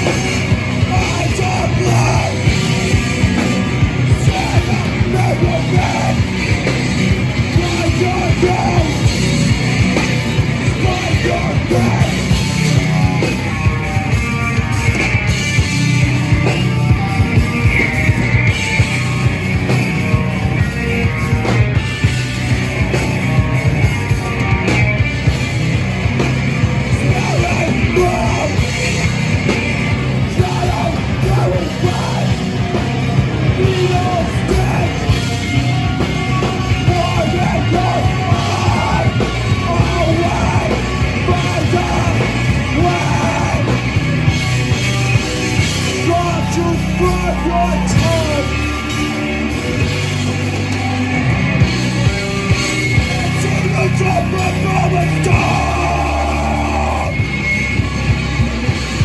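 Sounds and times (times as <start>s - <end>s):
shouted vocals: 0.0s - 3.0s, 3.7s - 6.5s, 7.4s - 9.2s, 10.6s - 12.5s, 26.9s - 28.9s, 30.2s - 45.2s, 45.8s - 50.4s, 52.9s - 57.4s
drum kit: 0.0s - 59.0s
electric guitar: 0.0s - 59.0s.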